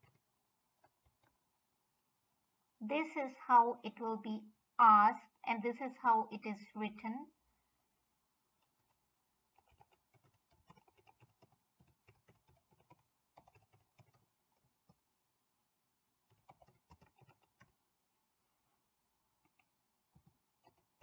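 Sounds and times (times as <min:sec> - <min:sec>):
typing on keyboard: 0:00.0 - 0:01.4, 0:08.6 - 0:15.0, 0:16.3 - 0:17.8, 0:19.4 - 0:21.0.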